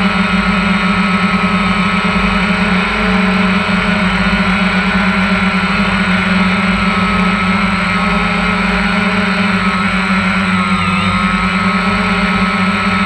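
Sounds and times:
drone propellers buzzing: 0:00.0 - 0:13.0.

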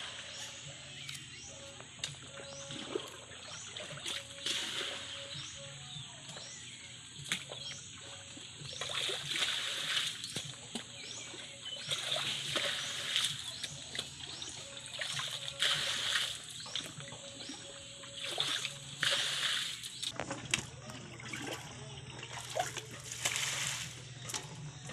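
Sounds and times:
water splashing onto ground: 0:08.8 - 0:10.9, 0:11.8 - 0:14.2, 0:14.9 - 0:17.0, 0:18.2 - 0:24.4.

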